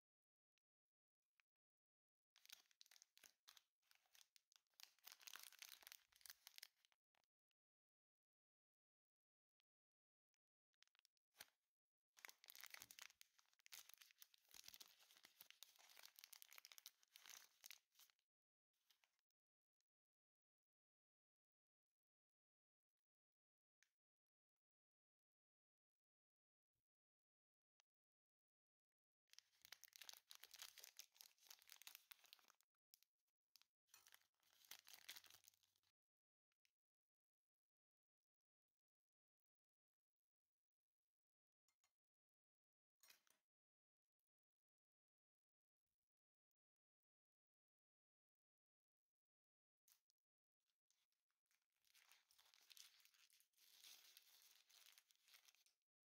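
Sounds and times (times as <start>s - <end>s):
plastic wrapper crinkling: 2.4s - 6.9s, 12.2s - 18.1s, 29.4s - 32.5s, 33.9s - 35.6s, 51.9s - 55.7s.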